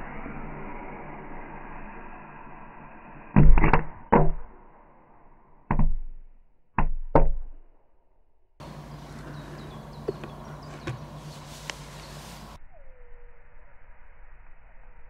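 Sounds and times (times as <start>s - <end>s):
firecracker hissing: 0.0s - 3.4s.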